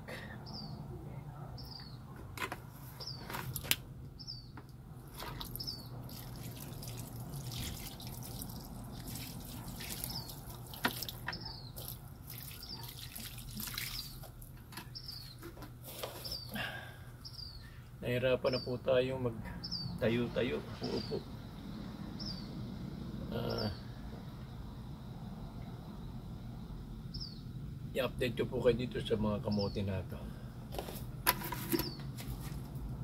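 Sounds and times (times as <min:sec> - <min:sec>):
small bird chirping: 0:01.6 - 0:02.0, 0:04.2 - 0:04.6, 0:05.4 - 0:06.0, 0:08.9 - 0:14.2, 0:14.8 - 0:15.4, 0:17.2 - 0:17.8, 0:22.2 - 0:22.6, 0:27.1 - 0:27.6.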